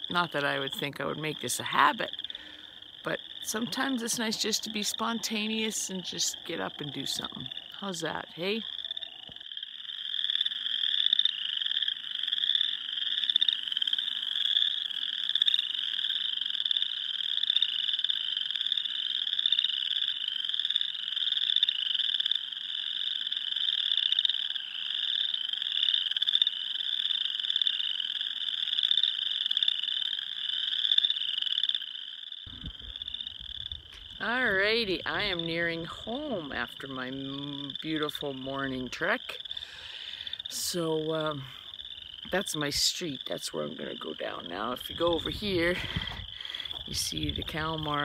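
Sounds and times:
frogs trilling: 0:00.0 - 0:48.0.

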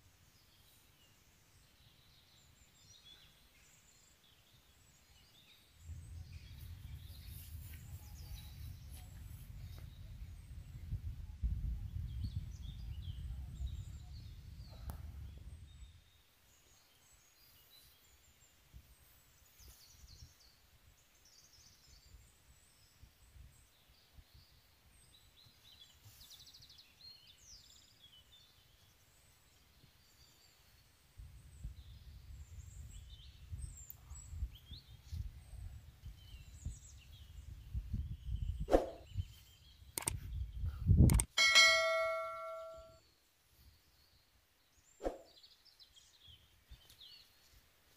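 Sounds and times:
small birds chirping: 0:00.0 - 0:47.7
wind rumble on microphone: 0:04.9 - 0:16.2, 0:19.8 - 0:21.0, 0:21.6 - 0:25.5, 0:29.8 - 0:41.3.

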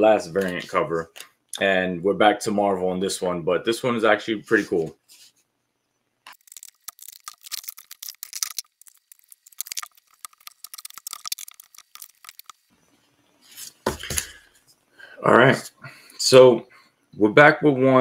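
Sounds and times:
plastic packaging crinkling: 0:06.3 - 0:12.7.

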